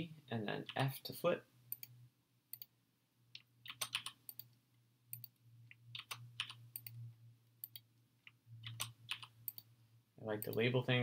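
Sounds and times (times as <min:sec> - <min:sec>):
faint low hum: 0:00.0 - 0:11.0
keyboard keystrokes: 0:03.4 - 0:04.4, 0:08.6 - 0:09.6.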